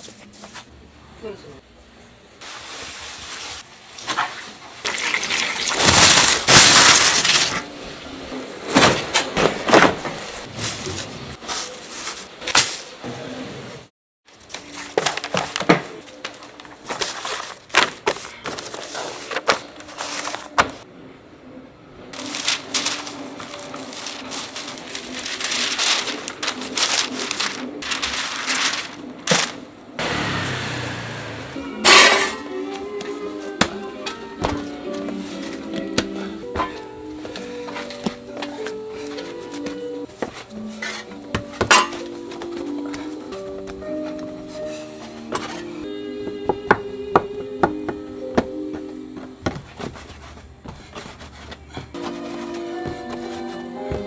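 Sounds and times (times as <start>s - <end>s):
newspaper rustling and crackling: 5.4s - 7.7s, 14.3s - 20.8s, 22.2s - 29.7s.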